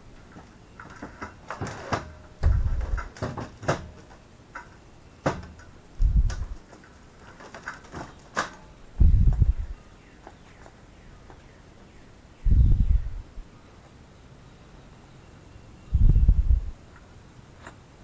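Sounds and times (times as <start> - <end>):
short low thuds: 2.4 - 3.0, 6.0 - 6.6, 9.0 - 9.8, 16.0 - 16.8.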